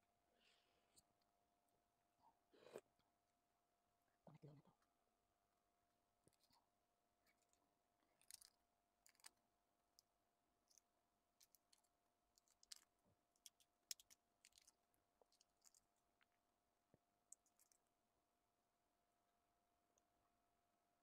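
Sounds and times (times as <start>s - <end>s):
faint steady hum: 0.0s - 21.0s
eggshell cracking: 7.3s - 16.0s, 17.3s - 17.9s.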